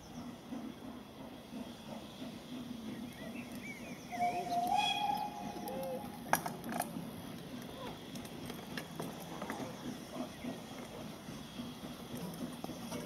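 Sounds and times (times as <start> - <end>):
birdsong: 0.0 - 6.3
steam locomotive whistle: 4.1 - 6.3.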